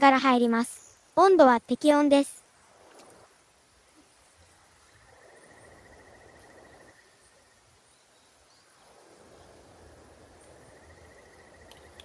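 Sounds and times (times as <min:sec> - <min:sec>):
insect trilling: 0:04.0 - 0:07.7, 0:08.5 - 0:12.0.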